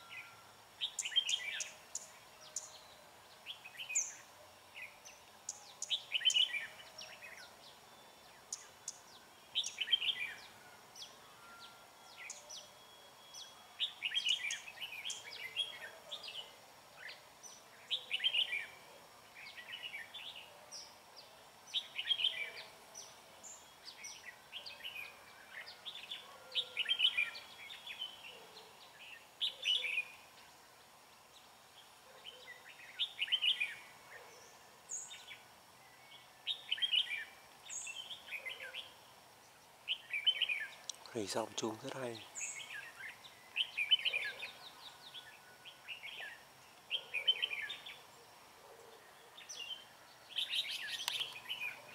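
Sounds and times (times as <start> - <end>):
birds singing warbled phrases: 0.8 - 30.5, 31.8 - 48.2, 49.0 - 51.9.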